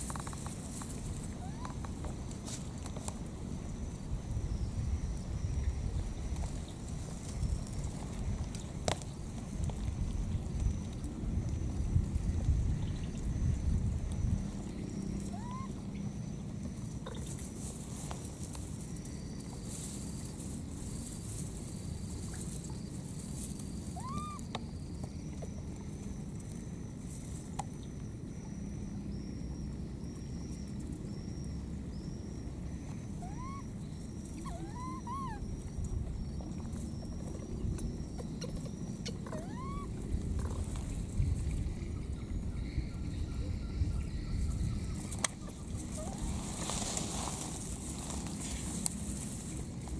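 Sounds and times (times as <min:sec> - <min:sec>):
baby monkey calling: 0:01.3 - 0:01.8, 0:15.2 - 0:15.8, 0:23.9 - 0:24.5, 0:33.2 - 0:35.6, 0:38.2 - 0:40.0.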